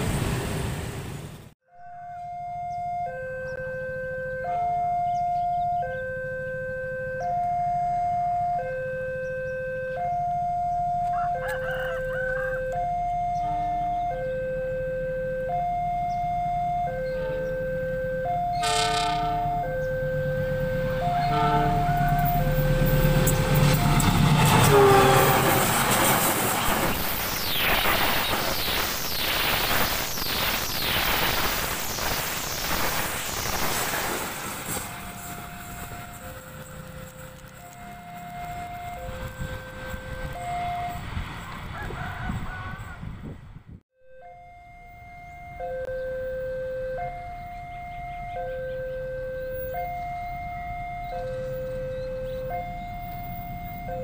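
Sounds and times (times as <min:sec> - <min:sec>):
diesel locomotive engine: 0:00.0 - 0:54.0
two-tone warning alarm: 0:01.7 - 0:42.5, 0:44.0 - 0:54.0
rooster crowing: 0:11.0 - 0:12.8, 0:41.4 - 0:43.2
train horn: 0:18.2 - 0:26.1.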